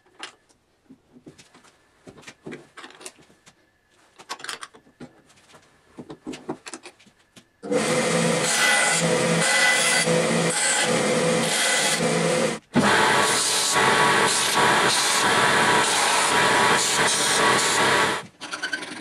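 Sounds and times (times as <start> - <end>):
bandsaw cutting metal sheet: 7.6 - 18.3
saw motor hum: 7.6 - 18.3.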